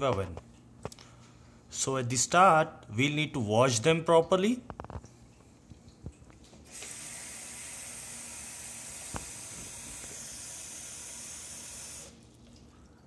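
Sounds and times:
water running into plastic bowl: 5.6 - 13.0.

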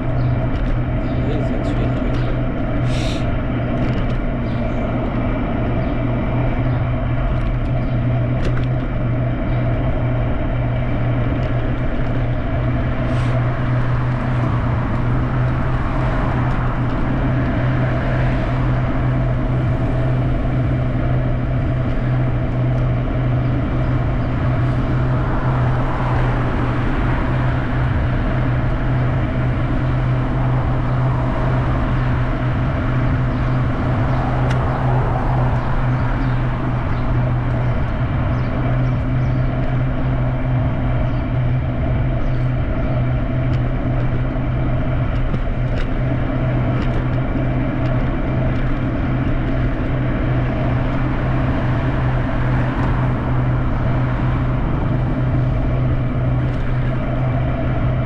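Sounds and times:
vehicle hum with road noise: 0.0 - 58.0.

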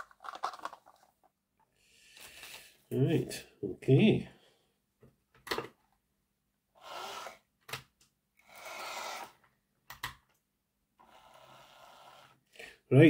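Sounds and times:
model train motor whirring: 8.4 - 9.4.

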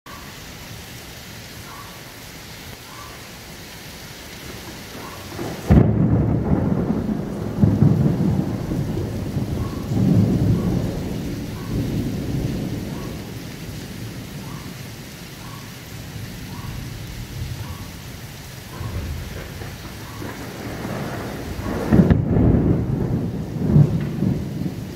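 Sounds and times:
steady rain falling: 0.1 - 24.9
thunder crack and rumble: 4.9 - 14.6, 18.7 - 24.9.

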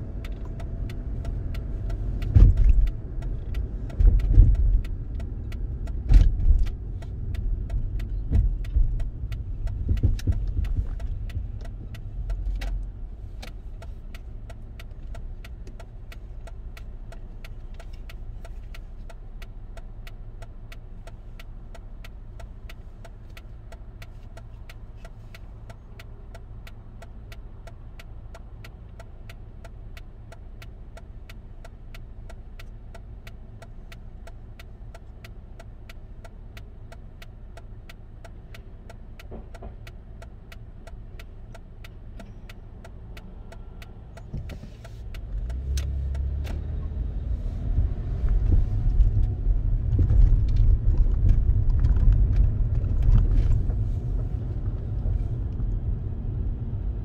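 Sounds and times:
car engine and road noise: 0.0 - 57.0
turn signal ticking: 0.0 - 57.0.

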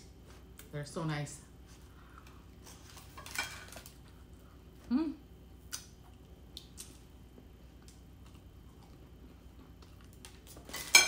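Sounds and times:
food handling clicks and crackles: 2.2 - 4.3, 5.7 - 11.0.

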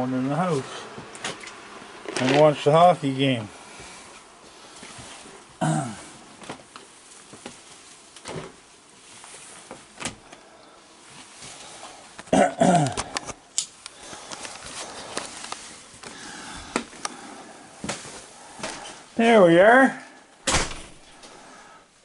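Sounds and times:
knocks and clicks of moving about: 12.1 - 17.2.

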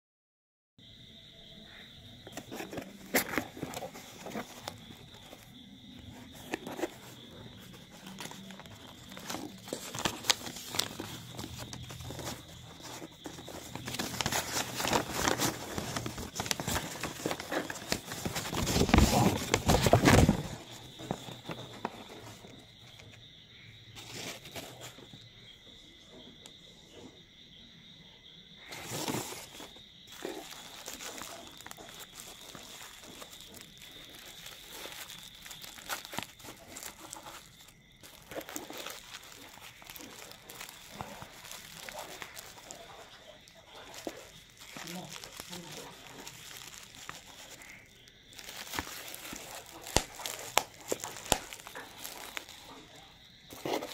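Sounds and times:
cardboard and packing tape handled: 2.3 - 22.6, 24.0 - 25.0, 28.7 - 53.9
plastic and paper crinkling: 2.3 - 23.2, 24.0 - 25.1, 28.7 - 53.9
tearing: 28.7 - 43.0, 43.8 - 52.8.

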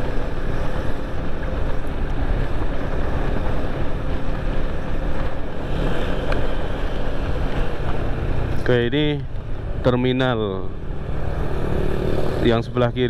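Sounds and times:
wind rushing over microphone: 0.0 - 13.0.

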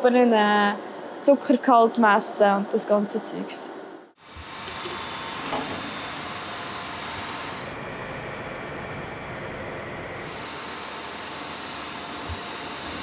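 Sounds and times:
gas torch flame hissing: 4.0 - 7.8, 10.2 - 13.0.

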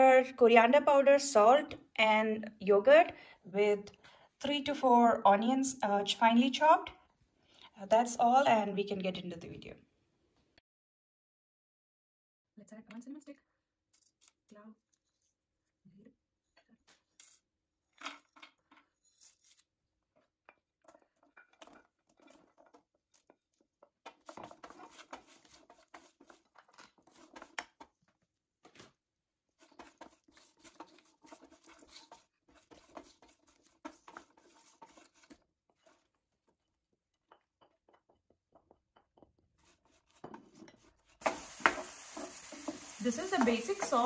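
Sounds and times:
wooden spatula scraping pan: 20.8 - 28.0, 29.5 - 44.0.

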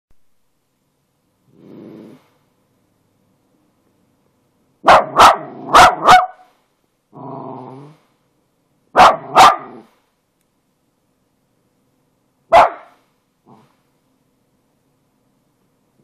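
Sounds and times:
dog growling: 1.5 - 2.4, 7.2 - 8.1, 13.4 - 13.8
dog barking: 4.8 - 6.5, 9.0 - 9.9, 12.5 - 13.6.

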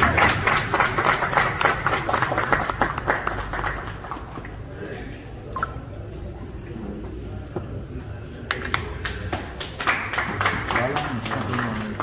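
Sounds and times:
small group clapping: 0.0 - 4.8, 8.4 - 12.0.

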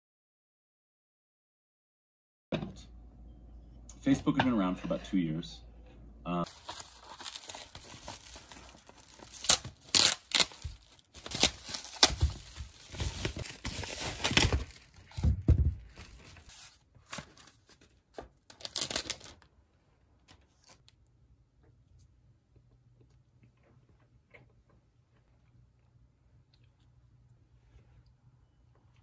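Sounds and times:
foil wrapping crinkling and tearing: 6.4 - 15.3, 15.9 - 19.4.

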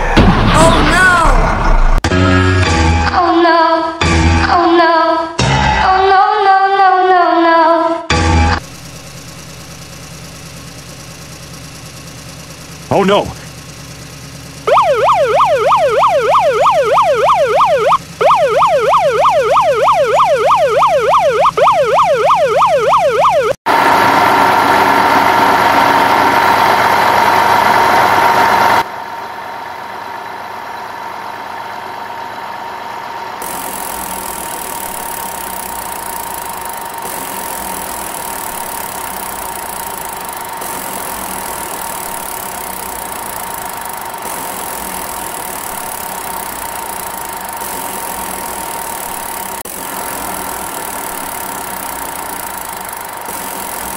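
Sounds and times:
loud engine: 8.1 - 53.9
machine hum: 8.6 - 53.9
police siren wailing: 14.6 - 23.6.

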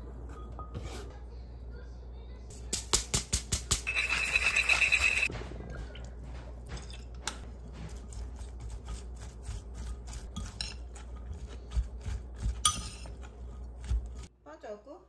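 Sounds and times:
spoon clinking against glass: 3.8 - 5.3
spoon mixing salad: 3.9 - 14.3.

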